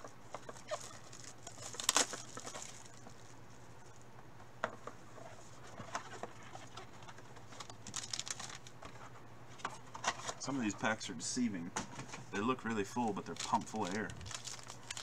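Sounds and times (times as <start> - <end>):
foil packs crinkling: 0.0 - 3.6, 5.7 - 8.9, 12.6 - 15.0
low steady hum: 0.0 - 15.0.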